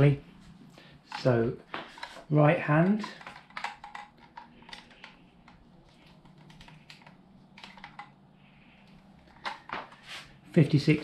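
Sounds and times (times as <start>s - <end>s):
plastic handle clicking and creaking: 2.8s - 8.2s.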